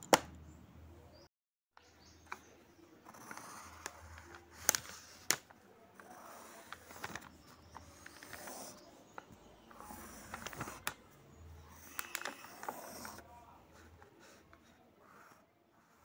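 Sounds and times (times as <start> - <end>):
pencil scratching on paper: 3.0 - 5.2, 5.9 - 10.8, 11.6 - 16.0.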